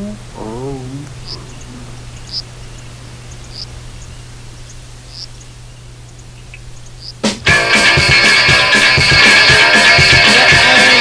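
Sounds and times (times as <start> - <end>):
low electrical hum and hiss: 0.0 - 7.5.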